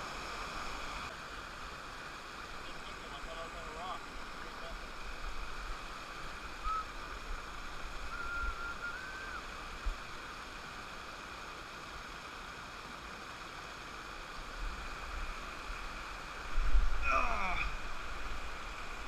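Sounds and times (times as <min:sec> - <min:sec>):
river rushing over rocks: 0:00.0 - 0:19.0
short thin whistle: 0:06.6 - 0:06.9, 0:08.1 - 0:09.4.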